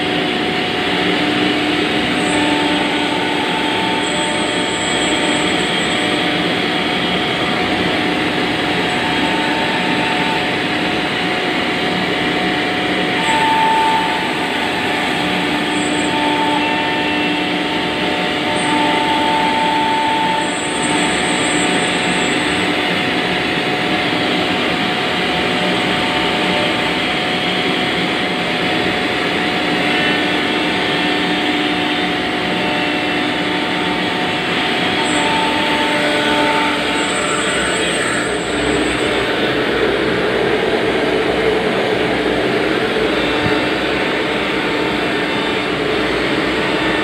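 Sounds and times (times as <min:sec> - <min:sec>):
machine whine: 0:00.0 - 0:47.0
router spindle rushing noise: 0:13.0 - 0:17.3, 0:32.0 - 0:47.0.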